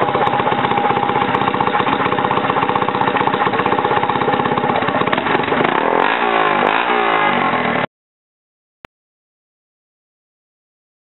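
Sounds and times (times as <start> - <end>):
dirt bike engine idling: 0.0 - 7.9.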